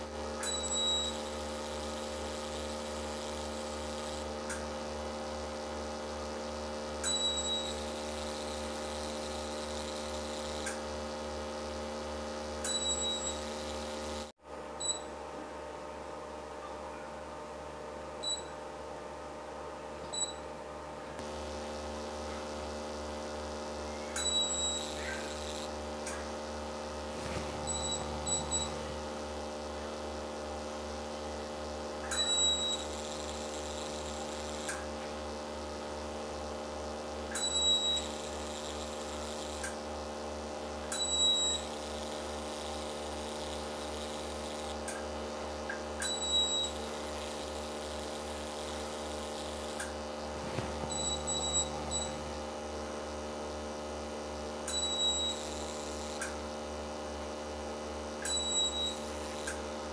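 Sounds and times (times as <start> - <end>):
laser machine humming: 0.0 - 15.2, 21.2 - 59.9
short high beeps: 27.6 - 28.8, 50.9 - 52.2.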